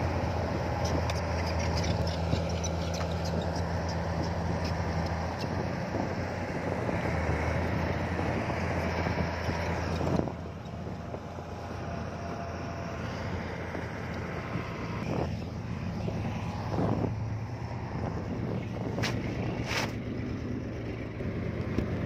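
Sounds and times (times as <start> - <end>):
heavy diesel engine running: 0.0 - 22.0.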